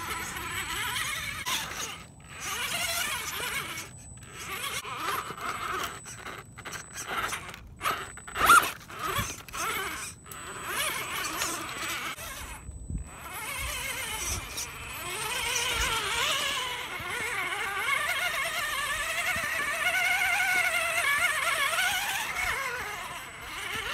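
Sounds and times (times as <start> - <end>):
tyres scraping on stone: 0.0 - 12.4
electric motor whining: 0.0 - 23.9.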